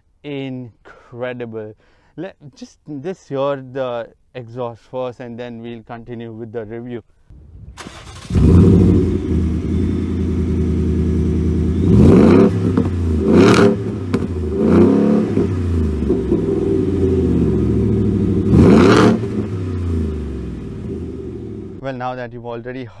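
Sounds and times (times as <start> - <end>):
car engine idling and revving: 7.3 - 21.8.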